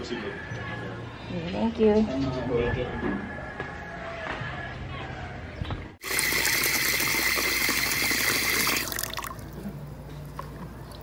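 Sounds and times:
tap water running into washbasin: 0:06.0 - 0:09.5.

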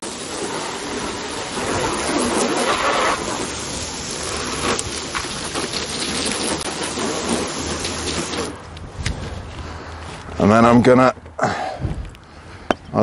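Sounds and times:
hose water spraying on plastic: 0:00.0 - 0:09.4.

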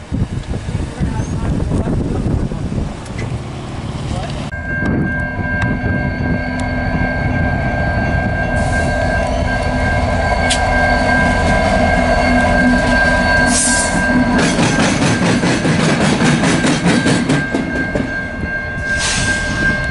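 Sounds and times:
diesel locomotive engine rumble: 0:00.0 - 0:19.9
crossing bell ringing: 0:04.5 - 0:19.9.

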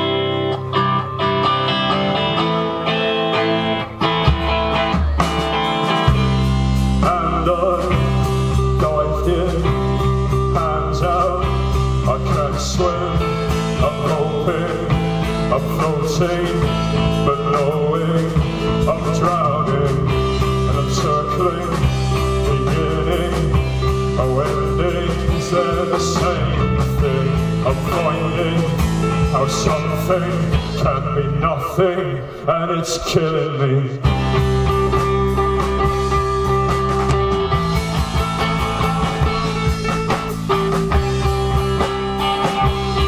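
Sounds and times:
bass guitar: 0:00.0 - 0:43.0
electric guitars: 0:00.0 - 0:43.0
drum strokes: 0:34.1 - 0:43.0.

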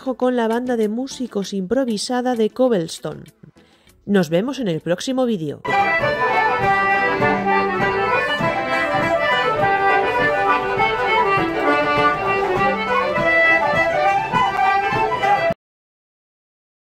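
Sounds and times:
banjo: 0:05.7 - 0:15.6
strummed rhythm: 0:05.7 - 0:15.6.

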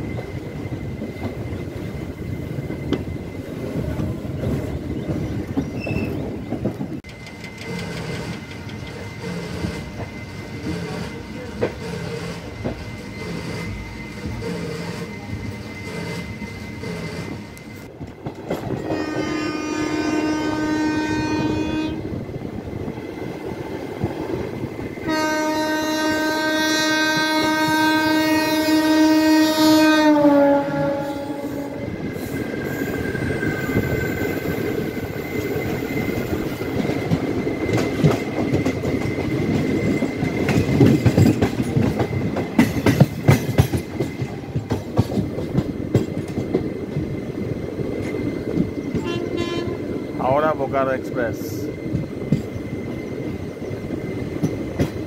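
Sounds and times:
train wheels clattering over rail joints: 0:00.0 - 0:19.7, 0:31.6 - 0:49.4, 0:51.7 - 0:55.0
train air horn: 0:18.8 - 0:22.1, 0:25.0 - 0:31.9, 0:49.0 - 0:49.9.

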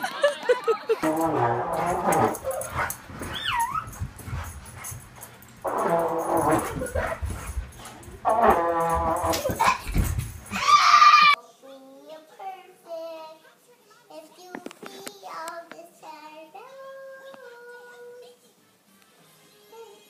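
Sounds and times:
trombone notes: 0:01.0 - 0:02.5, 0:05.6 - 0:06.9, 0:08.2 - 0:09.5
dog whining: 0:01.8 - 0:04.0
thud of child falling on floor: 0:09.0 - 0:10.8.

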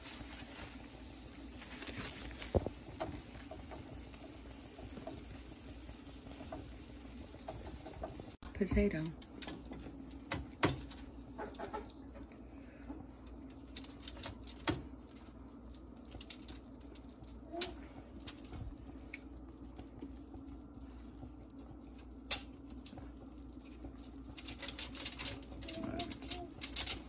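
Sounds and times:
foil crinkling: 0:00.0 - 0:03.6, 0:13.2 - 0:18.5, 0:22.0 - 0:27.0.

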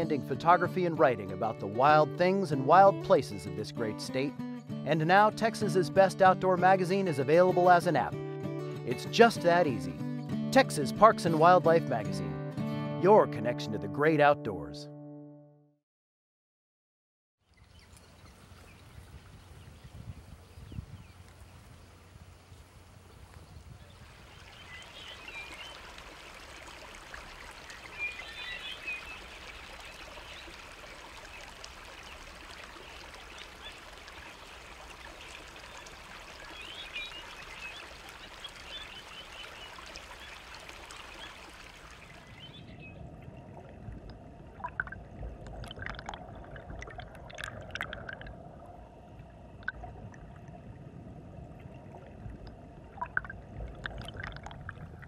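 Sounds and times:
water trickling over a weir: 0:17.4 - 0:55.0
underwater bubbly pops and gurgles: 0:42.0 - 0:55.0
muffled underwater rumble: 0:42.5 - 0:55.0.

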